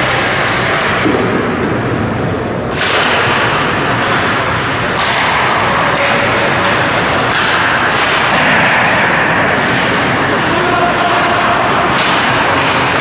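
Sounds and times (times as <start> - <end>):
hockey sticks and puck knocking: 2.7 - 13.0.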